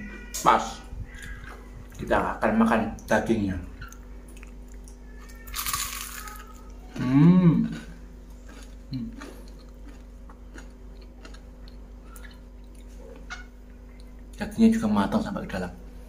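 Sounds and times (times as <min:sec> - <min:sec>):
man humming mmm: 0:06.9 - 0:07.9, 0:08.9 - 0:09.3
chewing clicks: 0:07.7 - 0:13.0.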